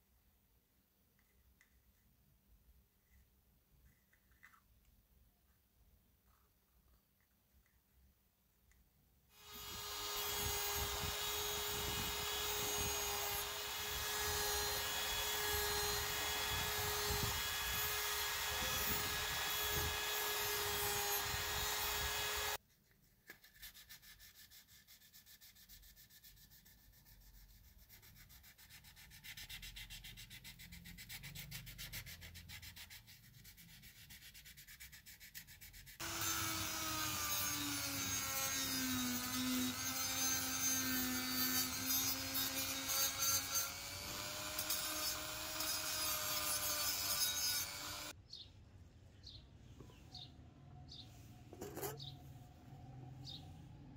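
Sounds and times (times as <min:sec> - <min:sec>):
power sanding with steady hum: 0:09.4 - 0:22.6, 0:36.0 - 0:48.1
rotary tool sanding: 0:09.4 - 0:22.6, 0:23.7 - 0:48.2
hand-sanding with sandpaper: 0:14.2 - 0:36.0.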